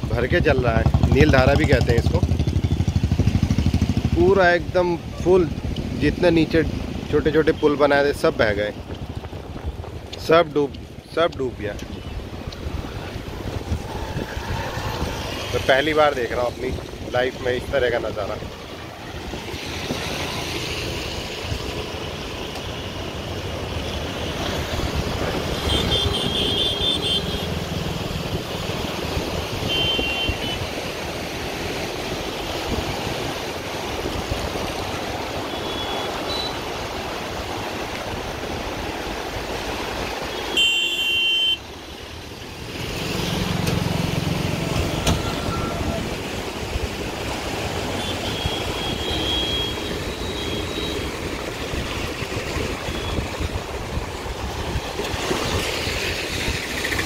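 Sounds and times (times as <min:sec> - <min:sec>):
floodwater: 0:00.0 - 0:57.0
road traffic rushing: 0:00.0 - 0:57.0
wind: 0:00.0 - 0:57.0
vehicle horn toots: 0:25.6 - 0:27.5, 0:29.6 - 0:30.6, 0:35.5 - 0:36.6, 0:40.3 - 0:41.6, 0:48.0 - 0:51.0.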